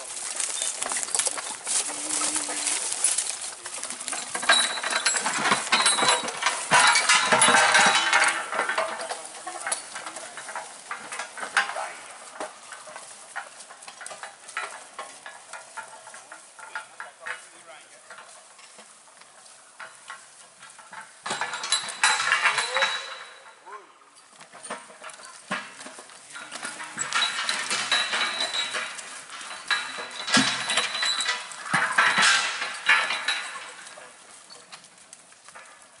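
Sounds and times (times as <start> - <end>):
hooves crunching through dry leaves: 0.0 - 7.2, 9.2 - 20.7.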